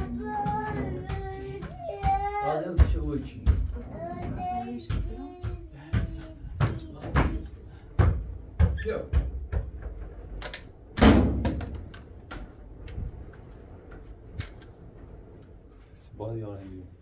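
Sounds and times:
knocks and clatters: 0:00.0 - 0:15.5
loud thump: 0:10.9 - 0:11.8.

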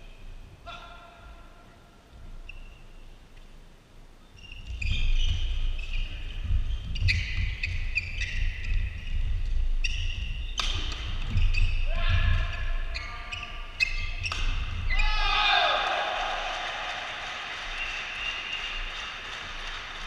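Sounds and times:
shoe squeaks: 0:02.4 - 0:03.2, 0:04.2 - 0:15.2
racket striking shuttlecock: 0:10.6 - 0:11.1, 0:14.2 - 0:14.7.

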